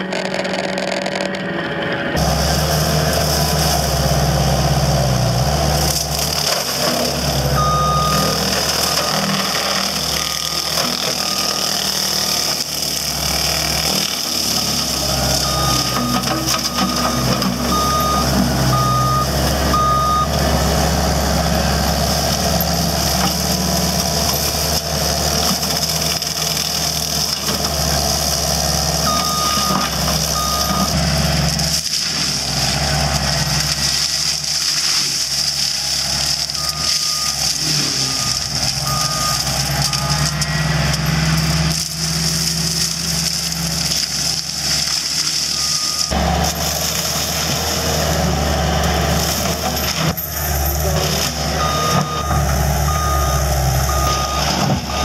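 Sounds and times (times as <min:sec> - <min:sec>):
diesel engine and hydraulic mower: 0:00.0 - 0:55.0
backup alarm beeping: 0:07.6 - 0:09.3, 0:15.4 - 0:20.4, 0:29.0 - 0:31.0, 0:36.6 - 0:40.8, 0:51.5 - 0:55.0.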